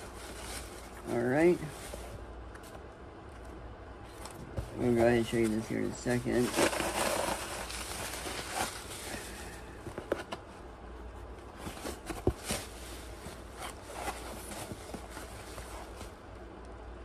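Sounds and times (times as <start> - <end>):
bubble wrap rustling and crinkling: 0.0 - 2.2, 4.7 - 10.2, 11.5 - 16.2.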